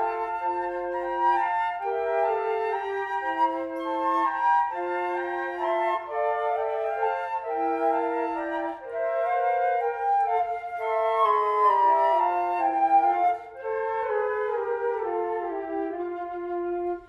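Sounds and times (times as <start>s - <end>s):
flutes playing classical piece: 0.0s - 17.0s.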